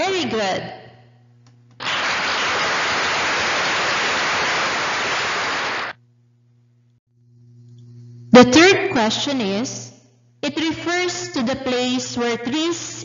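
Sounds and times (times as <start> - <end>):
static-like hiss: 1.8 - 6.0.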